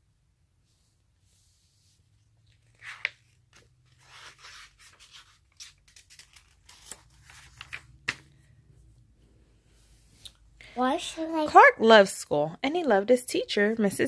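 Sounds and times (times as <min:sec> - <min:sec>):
book pages turning: 0:01.9 - 0:08.5.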